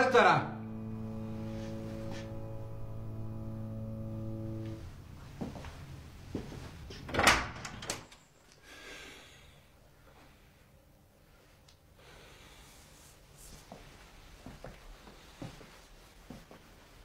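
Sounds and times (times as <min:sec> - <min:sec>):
sustained music chord: 0:00.0 - 0:07.0.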